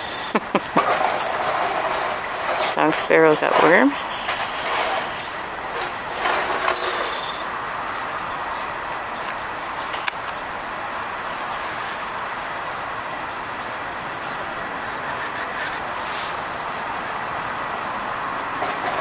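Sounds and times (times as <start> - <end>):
songbirds chirping: 0.0 - 18.6
wing flutters: 0.7 - 8.6
bird trill: 3.9 - 16.0.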